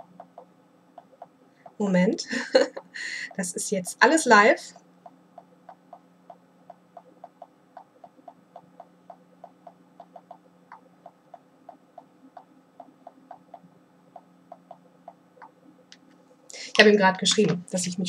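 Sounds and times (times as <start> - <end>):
fingers tapping touchscreen: 0.0 - 1.8, 5.0 - 16.0.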